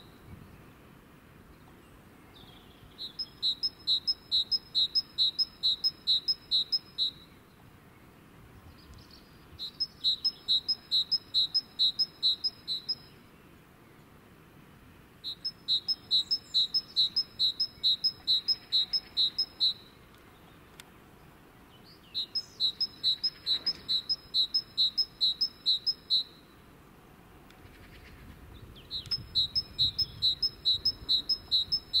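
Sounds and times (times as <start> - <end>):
high chirping: 3.0 - 7.3, 9.6 - 13.1, 15.2 - 20.0, 22.1 - 26.6, 28.8 - 32.0.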